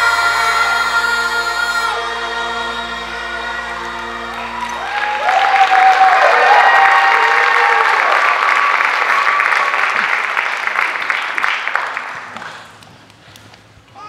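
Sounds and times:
audience applauding: 4.0 - 12.8.

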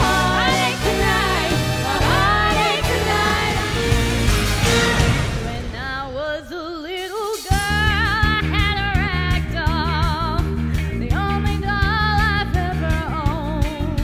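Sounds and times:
woman singing with vibrato: 0.0 - 4.0, 4.8 - 10.4
rock band playing: 0.0 - 6.0.

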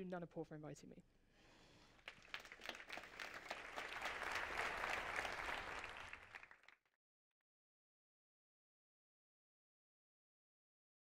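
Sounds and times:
audience applauding: 2.0 - 6.8.

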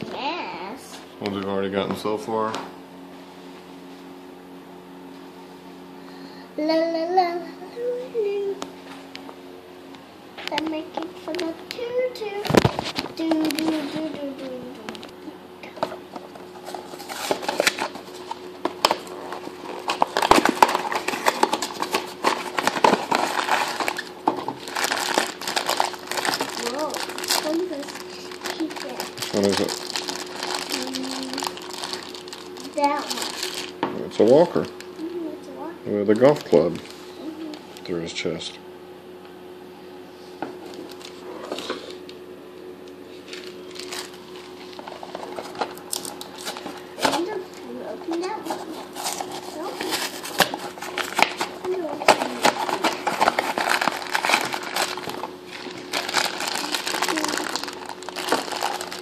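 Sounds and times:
cardboard box tearing and crinkling: 16.6 - 33.7, 48.4 - 59.0.

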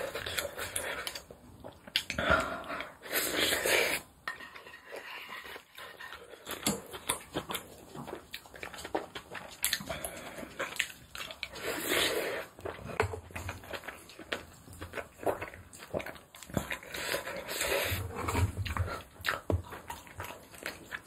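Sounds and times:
wet chewing and lip smacks: 5.8 - 11.6, 12.4 - 21.0.

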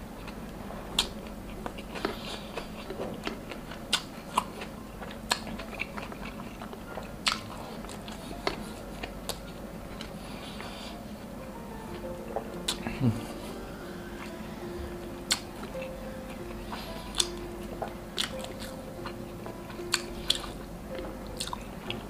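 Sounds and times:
close chewing and biting: 0.2 - 11.3, 11.9 - 22.0.

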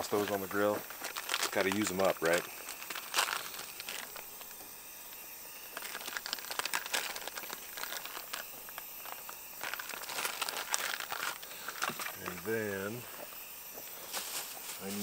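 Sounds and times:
food packaging crinkling: 0.0 - 4.6, 5.6 - 12.4.

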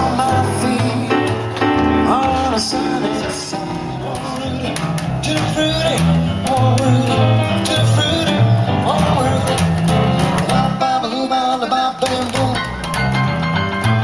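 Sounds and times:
piano chords: 0.0 - 14.0
plucked double bass walking: 0.0 - 14.0.

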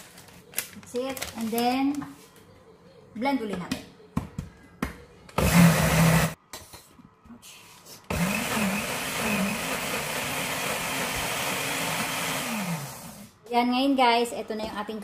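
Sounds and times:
electric blender running: 5.4 - 6.4, 8.1 - 13.3.

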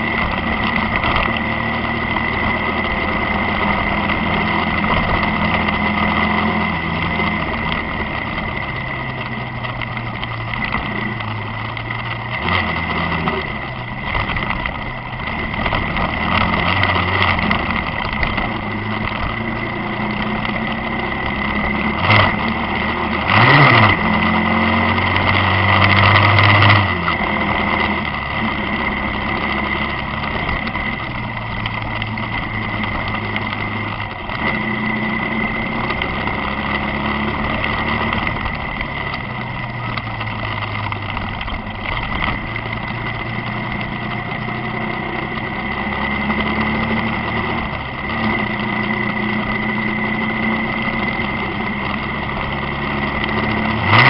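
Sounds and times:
motorcycle engine running: 0.0 - 54.0
road and wind noise: 0.0 - 54.0.

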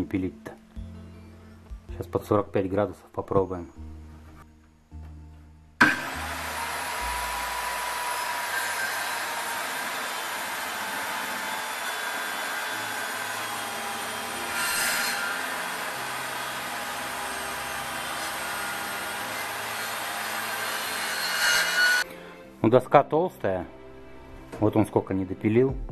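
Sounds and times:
circular saw cutting wood: 5.8 - 22.1.

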